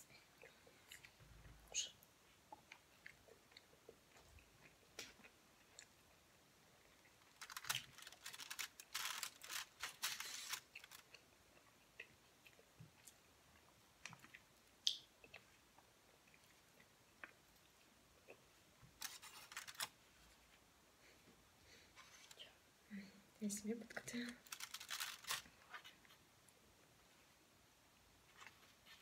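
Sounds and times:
chewing food: 2.5s - 18.6s
crisp crackling: 7.0s - 11.2s, 19.0s - 20.0s, 24.0s - 26.1s.

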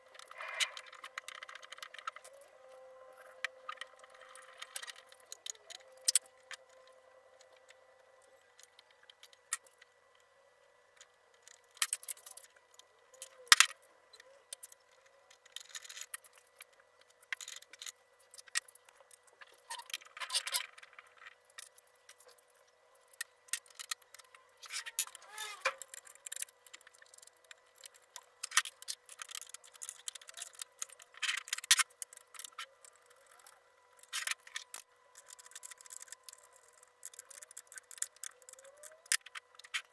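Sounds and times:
metal parts clicking and clinking: 14.5s - 18.7s, 23.1s - 39.9s.

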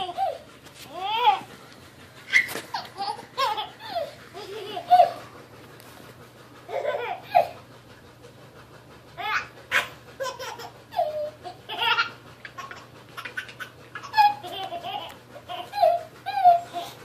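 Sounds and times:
baby laughing: 0.0s - 1.5s, 2.3s - 5.3s, 6.7s - 7.6s, 9.2s - 17.0s.

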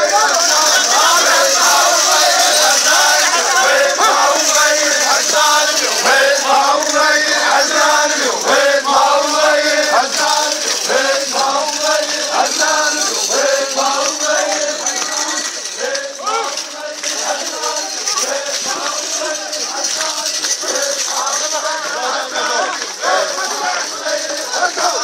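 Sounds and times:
crowd noise hiss: 0.0s - 25.0s
men chanting together: 0.0s - 25.0s.

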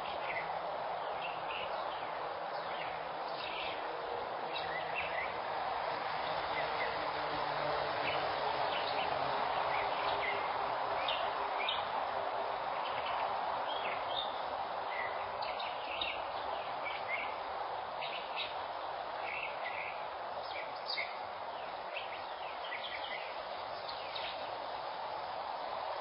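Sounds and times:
outdoor background hiss: 0.0s - 26.0s
small birds chirping: 12.7s - 25.7s.

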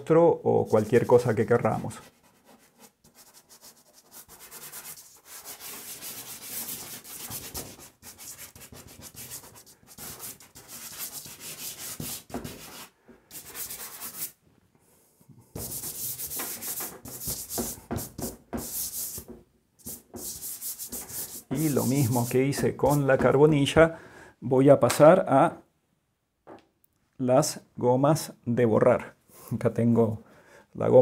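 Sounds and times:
hand rubbing on paper: 0.6s - 14.4s, 15.6s - 23.4s
pastel scraping across paper: 1.9s - 14.4s, 15.6s - 23.3s.

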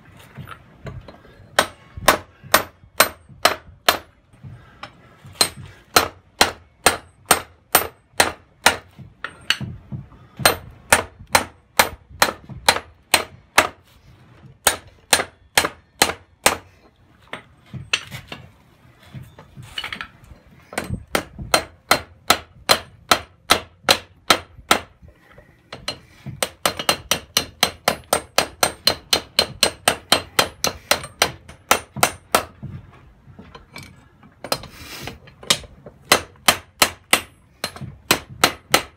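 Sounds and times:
hammer striking hot steel on anvil: 1.6s - 4.2s, 5.4s - 9.7s, 14.6s - 16.7s, 20.7s - 24.9s, 25.7s - 32.6s, 35.5s - 38.9s.

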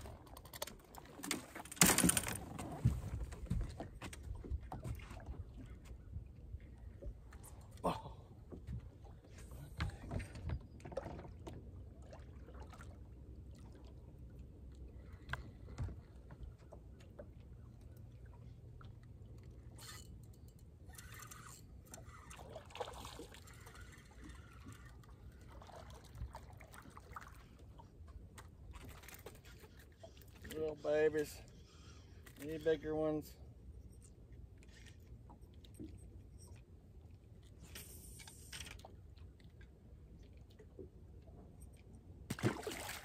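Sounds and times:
water lapping against boat hull: 0.0s - 33.2s
fish thrashing at the surface: 42.3s - 43.0s.

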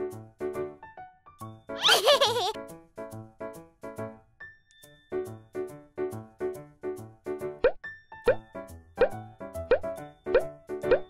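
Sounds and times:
light children's music: 0.0s - 11.0s
cartoon plop effects: 7.6s - 8.4s, 9.0s - 11.0s.

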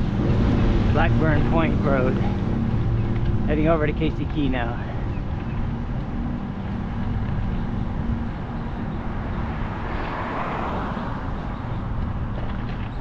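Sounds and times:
road noise: 0.0s - 13.0s
wind rumbling on microphone: 0.0s - 13.0s
vehicle passing with tyre hiss: 8.0s - 12.6s.

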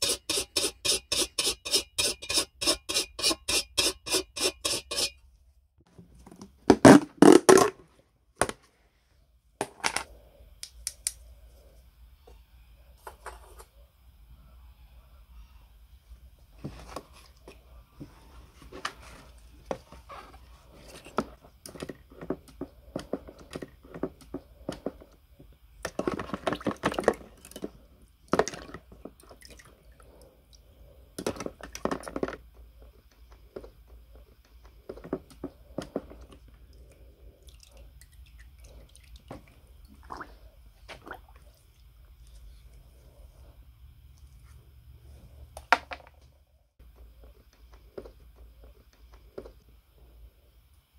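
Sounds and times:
liquid splashing and sloshing: 36.8s - 41.9s.

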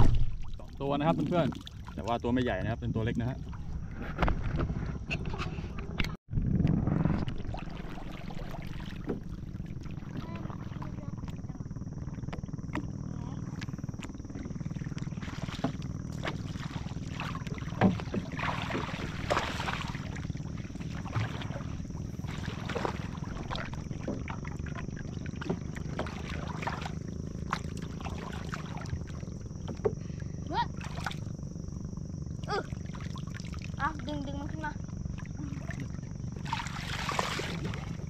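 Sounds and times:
low rumble: 0.0s - 38.0s
water splashing and sloshing: 0.0s - 38.0s.

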